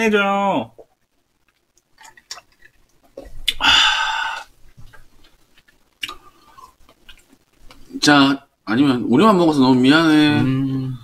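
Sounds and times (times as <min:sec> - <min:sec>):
loud breathy noise: 0:03.6 - 0:04.5.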